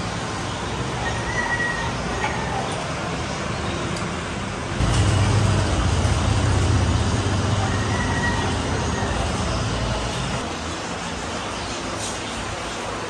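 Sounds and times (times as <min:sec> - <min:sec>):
traffic noise: 0:00.0 - 0:13.0
vehicle engine passing: 0:04.8 - 0:10.4.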